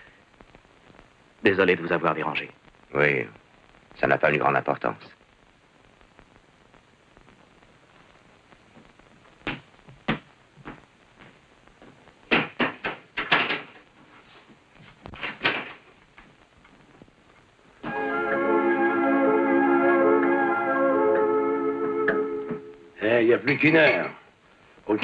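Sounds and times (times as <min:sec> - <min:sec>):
footsteps: 0:07.9 - 0:12.1.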